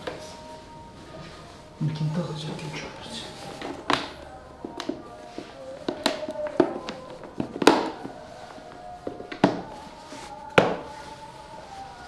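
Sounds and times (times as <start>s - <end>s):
quiet background music: 0.0s - 12.0s.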